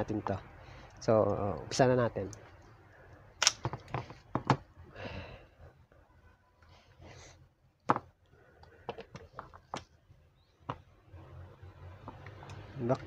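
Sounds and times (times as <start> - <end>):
sharp plastic clicks: 3.4 - 4.1
soft breaths: 4.0 - 9.2.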